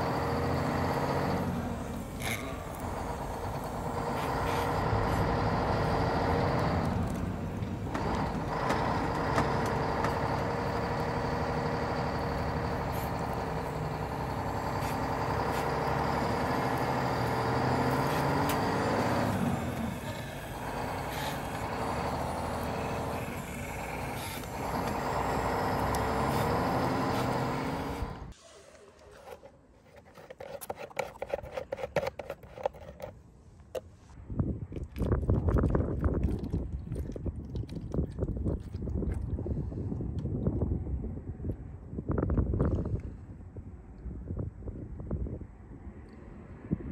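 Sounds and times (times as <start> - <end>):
toy electric motor whining: 12.0 - 28.3.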